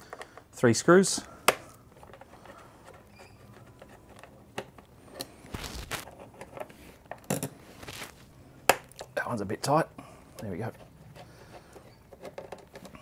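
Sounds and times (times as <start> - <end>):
screwdriver scraping: 10.7 - 13.0.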